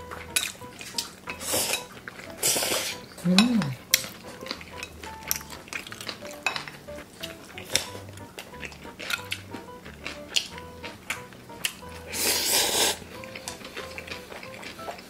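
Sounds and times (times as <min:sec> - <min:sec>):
noodles slurped: 0:00.3 - 0:15.0
person humming: 0:02.4 - 0:03.8
chopsticks clicking on glass bowls: 0:03.2 - 0:08.0.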